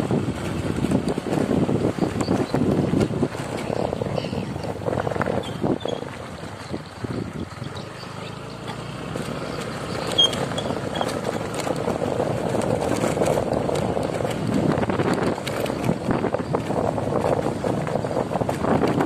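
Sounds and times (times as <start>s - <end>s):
vehicle rumbling on gravel road: 0.0s - 19.0s
wind buffeting microphone: 0.0s - 19.0s.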